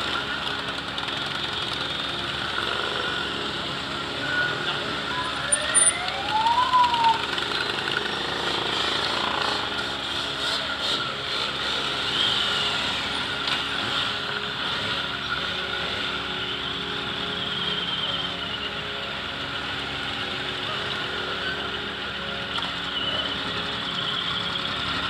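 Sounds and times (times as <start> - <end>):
several motorcycle engines running: 0.0 - 25.0.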